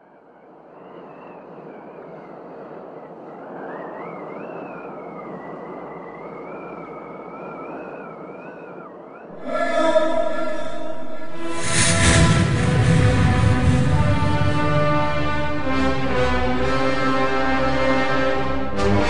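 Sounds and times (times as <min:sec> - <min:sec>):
thin wavering whistle: 0:03.6 - 0:09.4
rushing noise: 0:09.3 - 0:19.0
music with sustained chords: 0:09.4 - 0:19.0.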